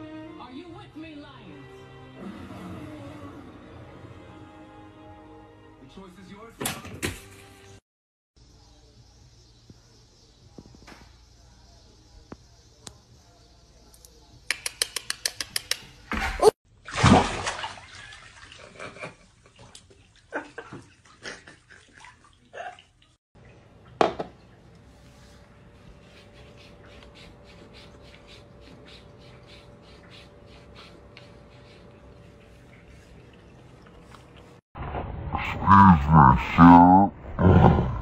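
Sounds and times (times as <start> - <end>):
cat lapping water: 26.0 - 34.6.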